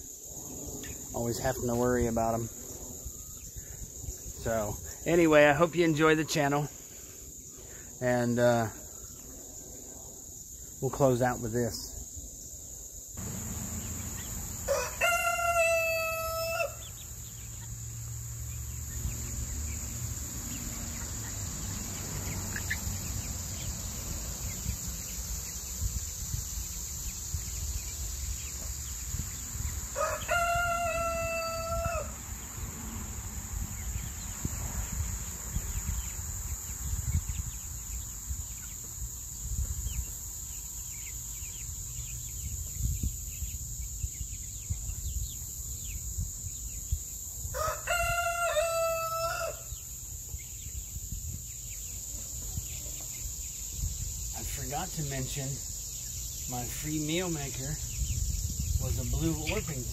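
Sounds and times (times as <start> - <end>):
rooster crowing: 14.2 - 17.1, 29.9 - 32.2, 47.5 - 49.8.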